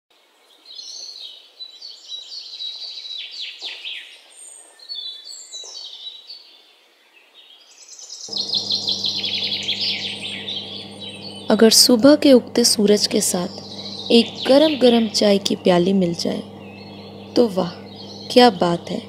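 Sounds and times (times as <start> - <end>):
songbirds chirping and trilling: 0.2 - 11.6, 13.1 - 19.0
steady low hum: 8.3 - 19.0.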